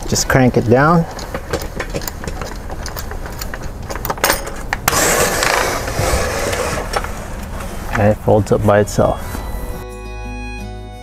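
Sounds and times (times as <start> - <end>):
umbrella crank clicking: 0.0 - 7.1.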